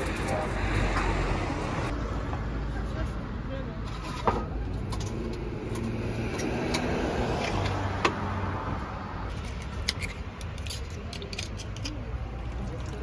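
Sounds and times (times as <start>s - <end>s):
car passing by: 5.9s - 9.2s.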